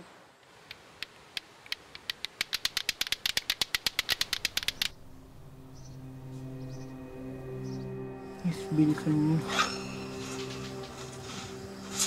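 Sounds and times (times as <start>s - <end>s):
plastic clacker balls clacking: 2.0s - 4.9s.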